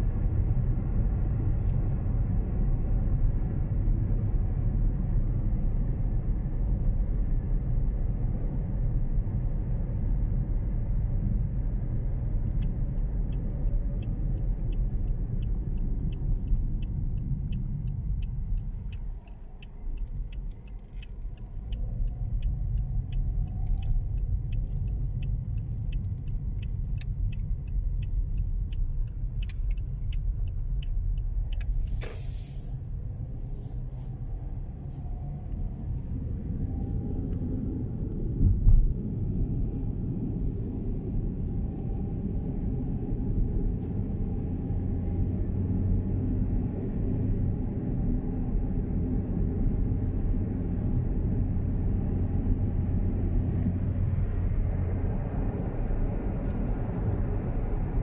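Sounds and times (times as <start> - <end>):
engine and tyre rumble: 0.0 - 58.0
brief hiss: 31.7 - 33.8.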